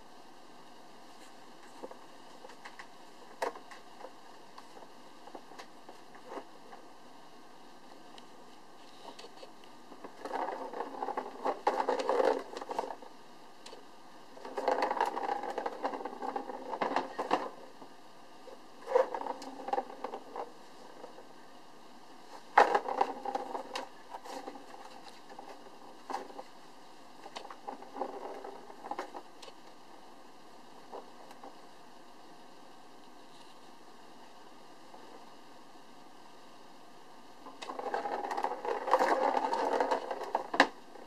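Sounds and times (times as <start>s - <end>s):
plastic ball rolling in track: 1.6s - 6.9s, 9.0s - 21.5s, 22.3s - 29.9s, 30.6s - 31.8s, 37.4s - 41.0s
ball clicking against track: 14.4s - 17.6s, 37.5s - 40.8s.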